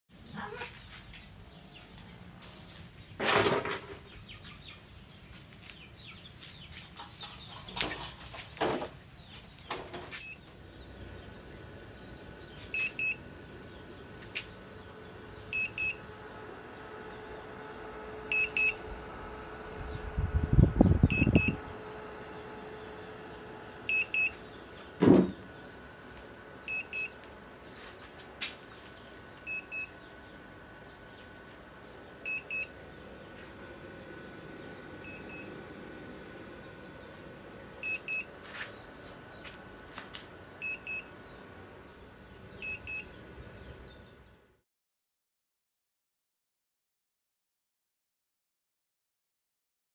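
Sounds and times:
steady hum: 0:00.9 - 0:44.6
electronic buzzer double beeps: 0:12.7 - 0:13.2, 0:15.5 - 0:16.0, 0:18.3 - 0:18.8, 0:21.0 - 0:21.6, 0:23.9 - 0:24.4, 0:26.7 - 0:27.2, 0:29.5 - 0:30.0, 0:32.2 - 0:32.8, 0:35.0 - 0:35.5, 0:37.8 - 0:38.3, 0:40.6 - 0:41.1, 0:42.6 - 0:43.1
low rumbling knocks: 0:25.0 - 0:25.5.

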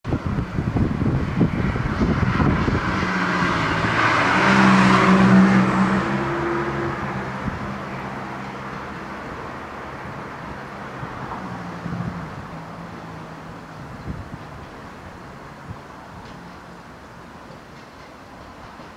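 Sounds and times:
vehicle passing by: 0:00.1 - 0:15.8.

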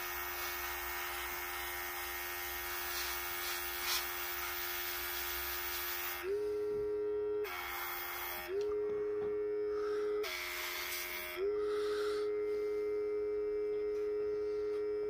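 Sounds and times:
air and paint spraying hiss: 0:00.0 - 0:06.2
airbrush compressor humming: 0:00.0 - 0:15.0.

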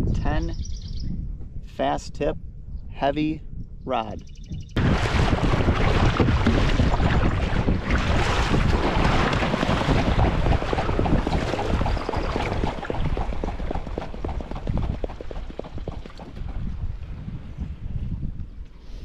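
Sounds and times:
wind buffeting microphone: 0:00.0 - 0:19.0
water splashing from wingbeats: 0:04.8 - 0:16.6.

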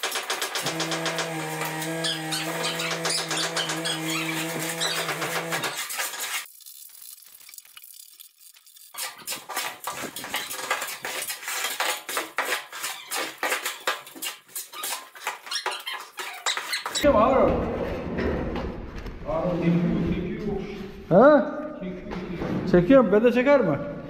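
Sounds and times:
shovels scraping metal: 0:00.0 - 0:06.5, 0:09.0 - 0:17.0.

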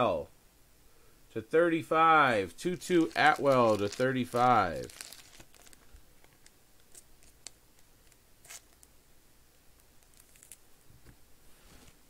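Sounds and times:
plastic card sleeve crinkling: 0:02.6 - 0:09.0, 0:09.8 - 0:10.6.

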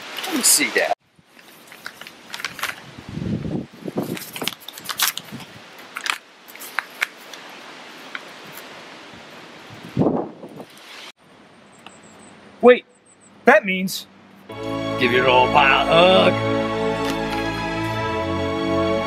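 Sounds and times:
paper crinkling and rustling: 0:01.3 - 0:02.9, 0:03.9 - 0:08.7.

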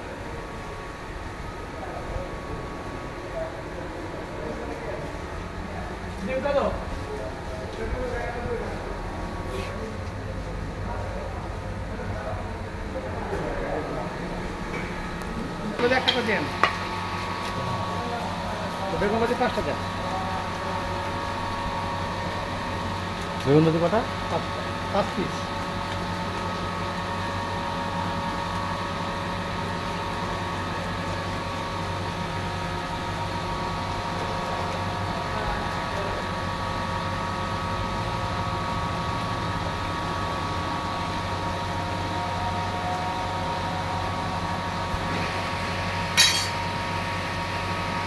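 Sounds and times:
sharp clink: 0:46.2 - 0:46.6.

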